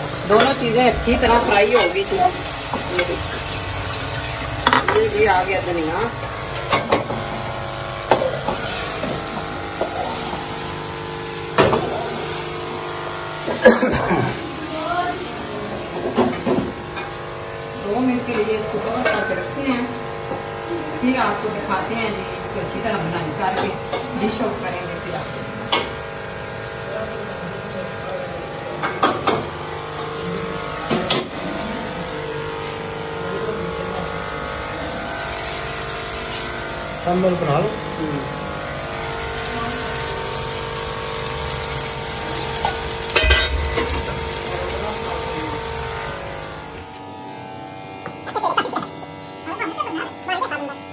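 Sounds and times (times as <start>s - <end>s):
curry sizzling in a pan: 0.0s - 47.0s
steady mechanical hum: 0.0s - 50.9s
metal clanking against steel pan: 0.3s - 3.4s, 30.9s - 31.4s, 42.6s - 44.4s.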